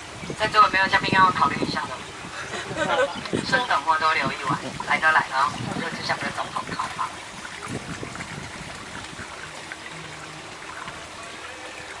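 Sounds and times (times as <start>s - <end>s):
water trickling along boat hull: 0.0s - 12.0s.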